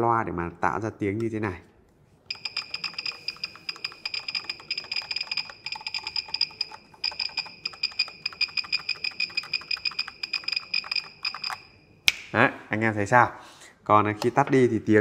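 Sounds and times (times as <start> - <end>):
mechanical keyboard typing: 2.3 - 11.7.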